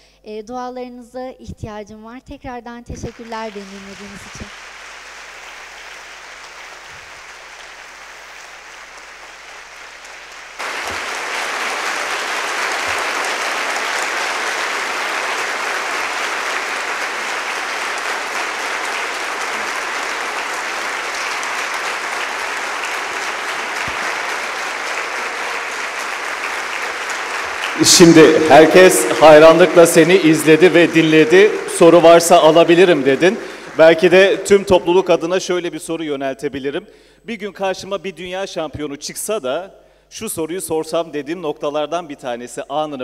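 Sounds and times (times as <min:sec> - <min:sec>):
audience applauding: 0:03.1 - 0:35.4.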